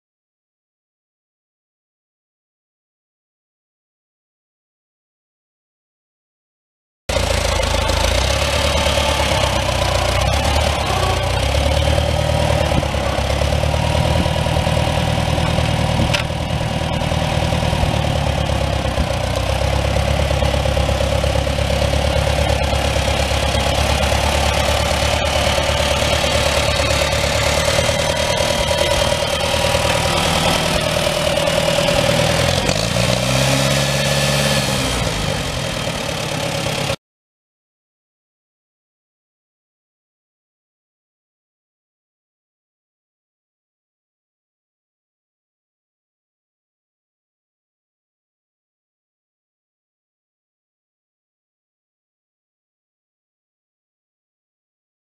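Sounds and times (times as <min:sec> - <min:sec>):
tractor engine running: 0:07.1 - 0:37.0.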